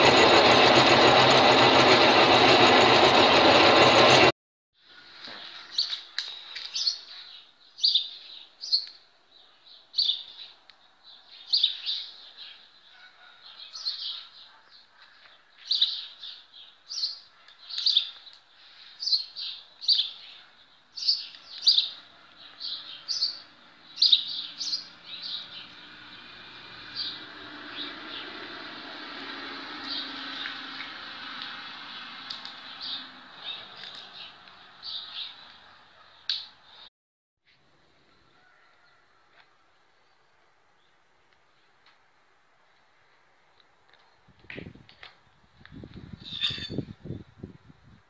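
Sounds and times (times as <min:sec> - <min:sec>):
metal lathe cutting: 0:00.0 - 0:04.3
small bird chirping: 0:06.7 - 0:09.0, 0:21.0 - 0:22.0, 0:22.7 - 0:25.8.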